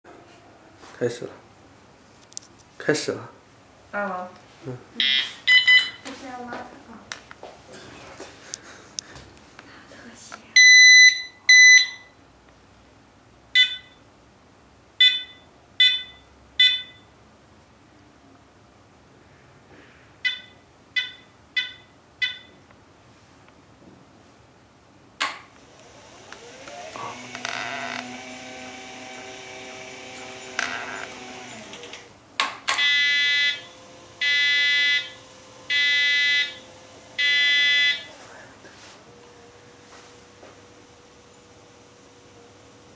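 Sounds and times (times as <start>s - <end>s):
wheelchair controller buzzer beeps: 5.0s - 6.0s, 10.6s - 12.2s, 13.6s - 14.0s, 15.0s - 17.1s, 20.2s - 22.6s, 26.3s - 32.0s, 32.8s - 38.2s
long electronic beeps: 32.8s - 38.1s.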